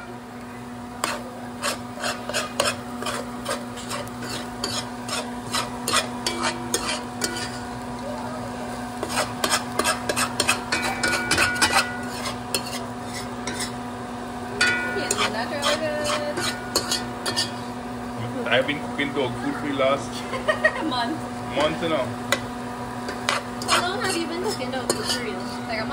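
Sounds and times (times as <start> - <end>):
food sizzling: 0.0 - 25.9
steady low hum: 0.0 - 25.9
utensil scraping in a pan: 0.9 - 7.9, 8.7 - 13.9, 14.6 - 17.8, 21.5 - 25.9.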